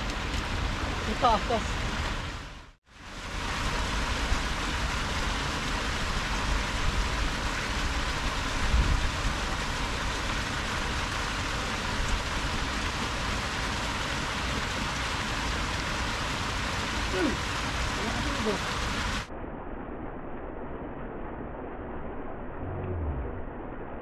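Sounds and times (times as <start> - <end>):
wind rumble on microphone: 0.0 - 16.8
flowing canal water: 0.0 - 19.3.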